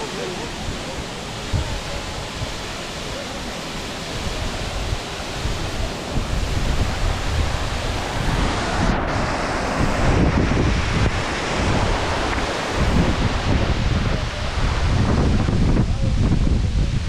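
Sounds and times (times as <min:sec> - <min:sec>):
waterfall crashing onto rocks: 0:00.0 - 0:17.0
wind rumble on microphone: 0:00.0 - 0:17.0.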